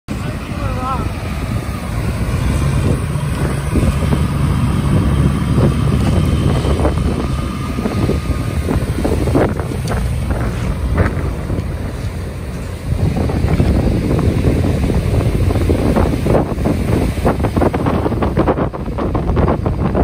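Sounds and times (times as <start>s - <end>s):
breaking surf: 0.1s - 20.0s
tractor diesel engine: 0.1s - 20.0s
wind buffeting microphone: 0.1s - 20.0s.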